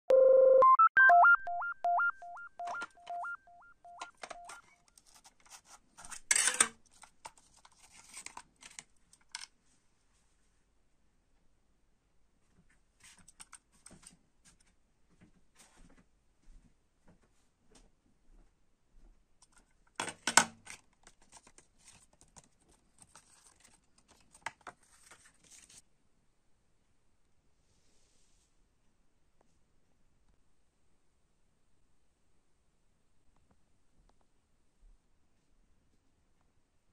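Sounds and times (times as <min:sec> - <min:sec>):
electronic beep jingle: 0:00.1 - 0:04.6
paper card crinkling and rustling: 0:04.1 - 0:09.5, 0:19.4 - 0:25.8
plastic cassette case clicking: 0:06.9 - 0:09.5.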